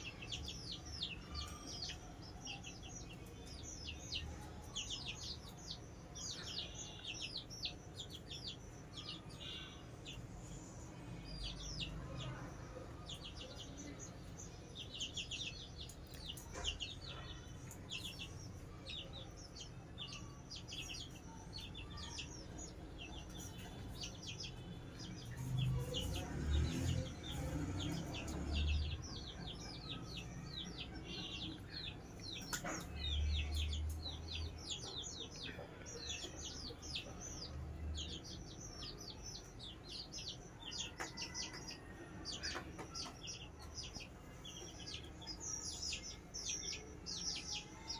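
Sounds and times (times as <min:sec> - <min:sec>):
chicks peeping: 0:00.0 - 0:47.9.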